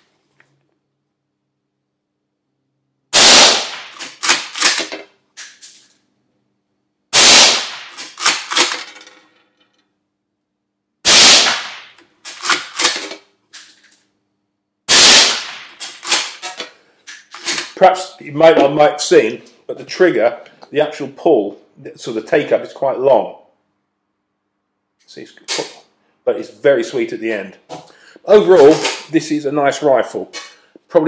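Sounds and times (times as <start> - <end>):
suppressed rifle shots: 3.2 - 4.9, 7.2 - 8.7, 11.1 - 13.0, 14.9 - 16.4.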